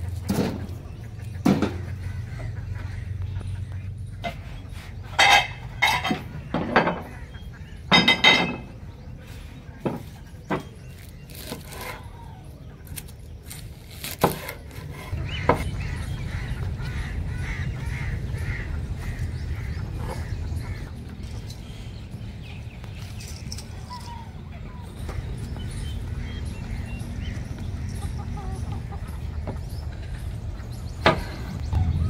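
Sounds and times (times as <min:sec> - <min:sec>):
dishes clinking on metal tray: 0:05.2 - 0:07.1, 0:07.9 - 0:08.8.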